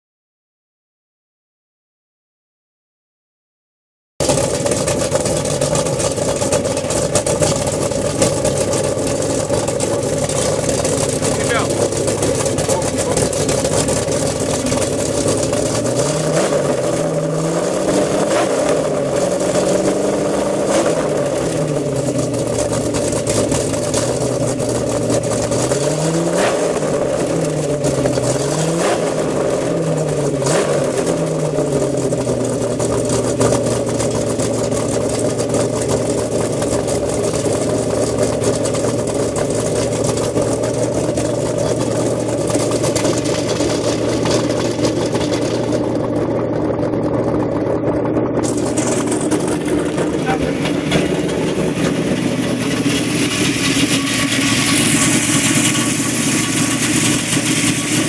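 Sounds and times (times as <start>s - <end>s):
car engine idling: 4.2s - 58.0s
car engine revving: 4.2s - 58.0s.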